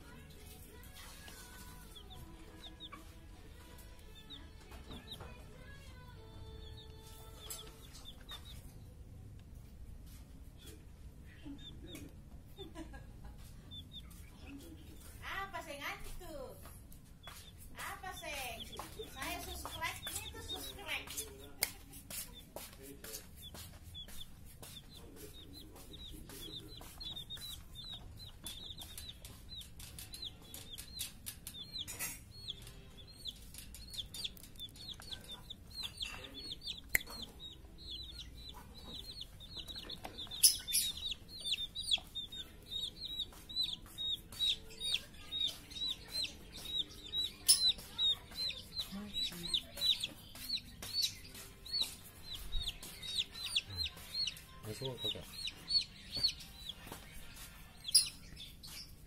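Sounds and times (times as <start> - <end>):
clicks and taps on wire cage: 16.6 - 54.5
cockatoo squeaky calls: 26.4 - 54.4.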